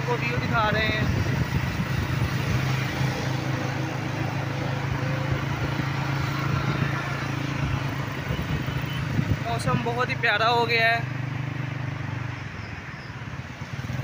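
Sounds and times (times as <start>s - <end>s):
wind rush on microphone: 0.0s - 10.3s
road noise: 0.0s - 14.0s
motorcycle engine running: 0.1s - 12.2s, 13.5s - 14.0s.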